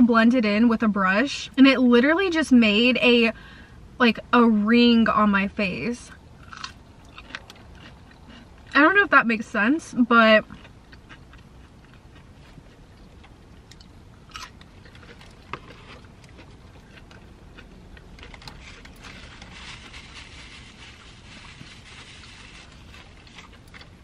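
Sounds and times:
chewing: 6.4s - 8.8s, 10.4s - 24.0s
paper napkin rustling: 18.6s - 23.5s.

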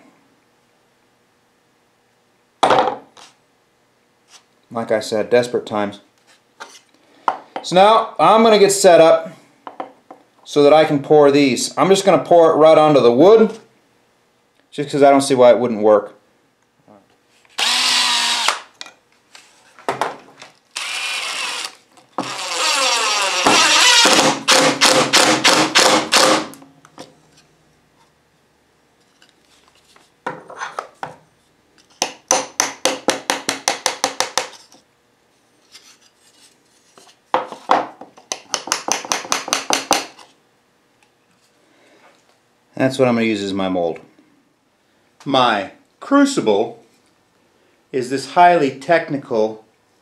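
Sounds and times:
drill motor whirring: 17.6s - 18.7s, 20.8s - 26.5s.

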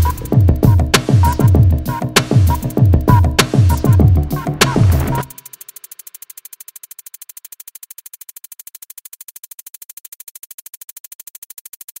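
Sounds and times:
rapid synthesizer pulse: 0.0s - 9.4s.

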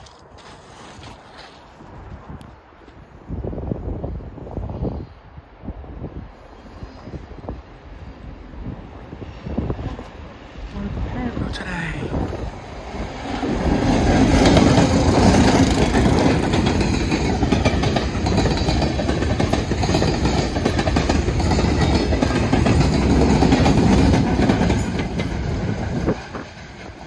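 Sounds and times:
train wheels clattering over rail joints: 13.2s - 27.0s.

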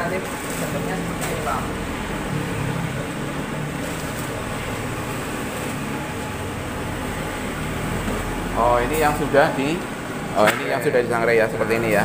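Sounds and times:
coffee roaster motor humming: 0.0s - 12.0s.

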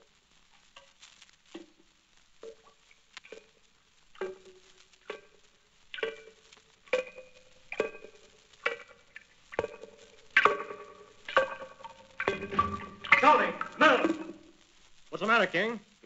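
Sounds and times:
amplified dripping tap plinks: 6.0s - 14.4s.

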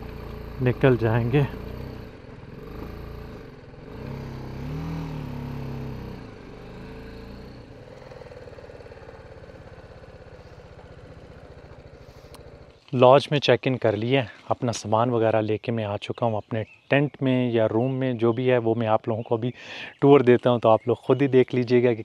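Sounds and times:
motorcycle engine: 0.0s - 14.0s.

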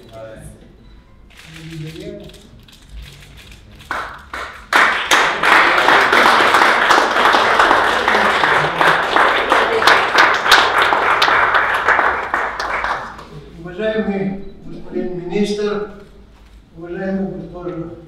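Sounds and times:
audience applauding: 3.8s - 13.3s.

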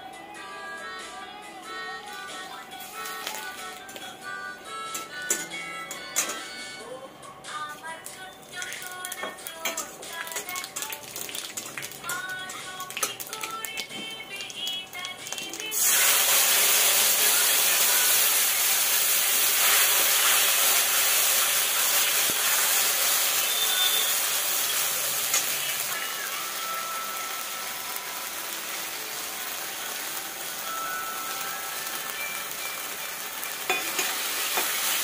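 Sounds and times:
paste sizzling in hot oil: 15.6s - 35.0s.

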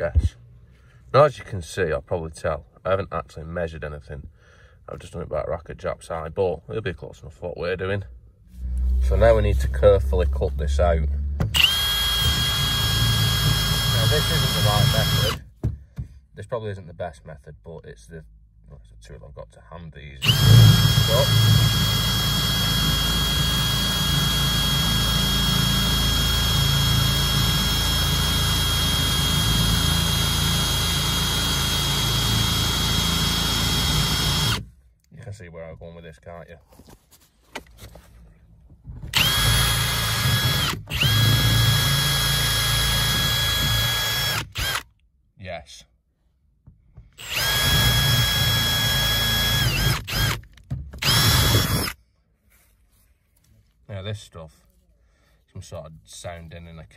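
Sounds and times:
drill boring through plastic: 11.4s - 15.4s, 20.2s - 34.7s, 39.1s - 44.9s, 47.2s - 52.0s.

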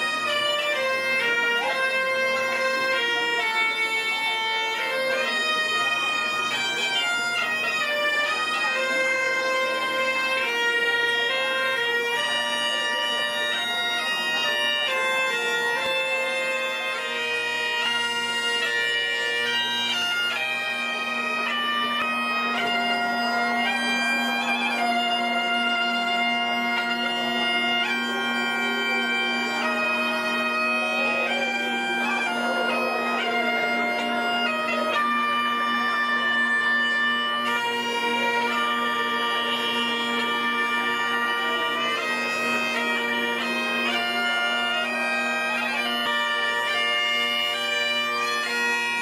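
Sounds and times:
bagpipe playing a tune: 0.0s - 49.0s.

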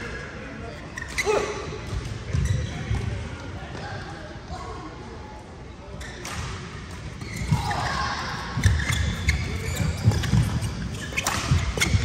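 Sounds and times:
racket hitting shuttlecock: 8.6s - 12.0s.

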